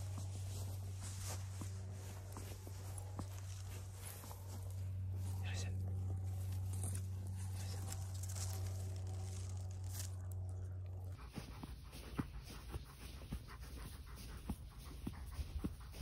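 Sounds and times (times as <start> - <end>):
dog rustling through grass: 0.0 - 10.4
low hum: 0.0 - 16.0
dog panting: 11.0 - 16.0.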